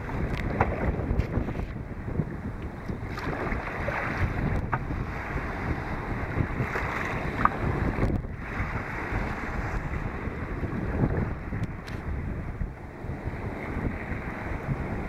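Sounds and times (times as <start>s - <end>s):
waves splashing on kayak: 0.0s - 15.0s
wind buffeting microphone: 0.0s - 15.0s.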